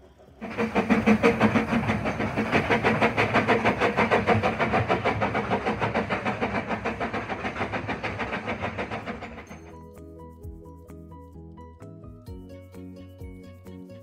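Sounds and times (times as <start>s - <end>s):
steam hiss: 0.0s - 9.7s
steam locomotive chuffing: 0.0s - 9.9s.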